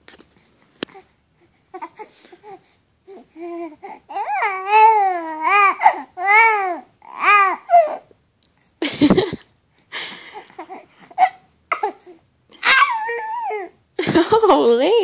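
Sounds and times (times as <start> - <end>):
baby cooing: 1.7 - 8.1, 10.4 - 13.8.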